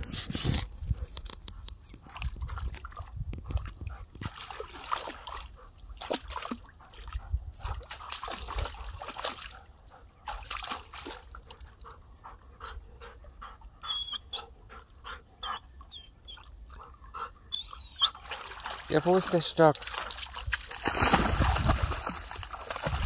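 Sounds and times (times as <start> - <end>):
dog splashing in water: 2.0 - 11.9, 18.0 - 23.0.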